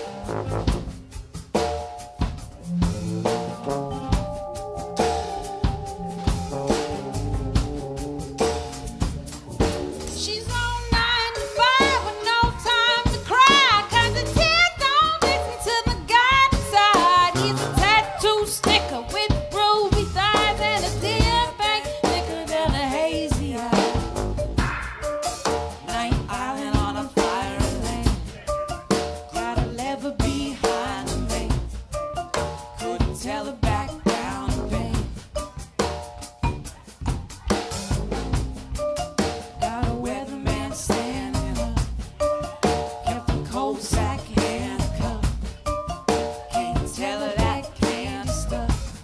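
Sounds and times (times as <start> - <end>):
drum kit: 0.0 - 49.0
mallet keyboard notes: 0.0 - 49.0
upright bass: 0.0 - 49.0
vibraphone: 1.5 - 9.3, 31.5 - 48.9
sousaphone: 24.6 - 25.4
person singing with vibrato: 43.0 - 45.5, 46.5 - 49.0.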